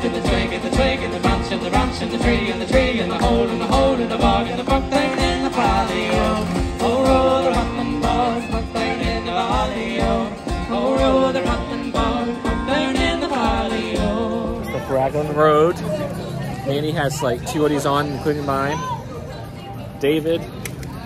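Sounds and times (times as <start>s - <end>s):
singing over a steady beat: 0.0s - 14.9s.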